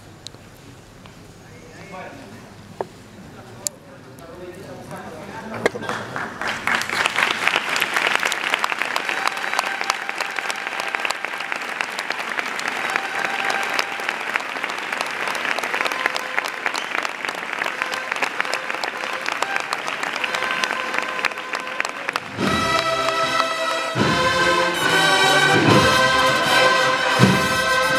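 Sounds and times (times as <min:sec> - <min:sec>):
crowd applauding: 0:05.8 - 0:27.9.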